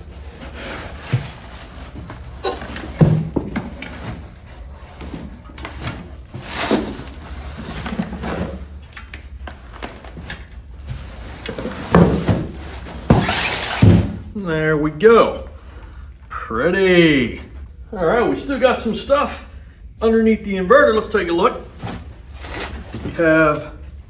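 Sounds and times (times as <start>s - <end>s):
plastic wrap rustling: 0.0s - 14.0s
cardboard box and foam knocking: 1.0s - 4.3s.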